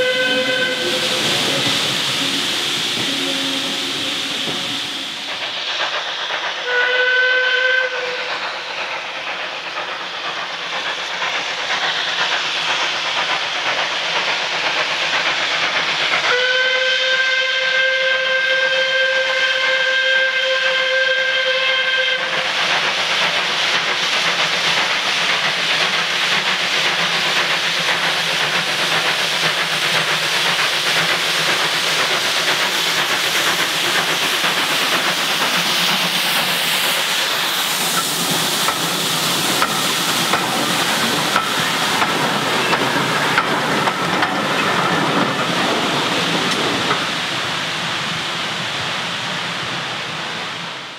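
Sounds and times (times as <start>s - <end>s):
steam whistle blasts: 0.0s - 5.1s, 6.6s - 8.3s, 16.3s - 22.3s
steam locomotive hissing: 0.0s - 50.9s.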